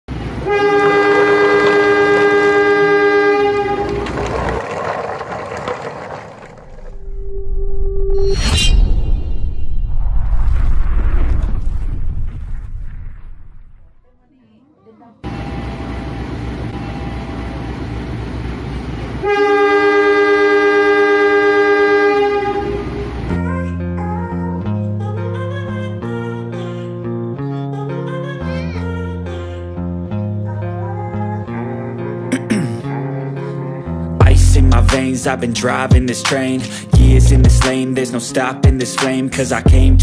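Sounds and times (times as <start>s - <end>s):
locomotive rumble: 0.1s - 7.7s
two-tone train horn: 0.4s - 4.6s, 19.2s - 23.3s
low rumble: 3.4s - 14.0s.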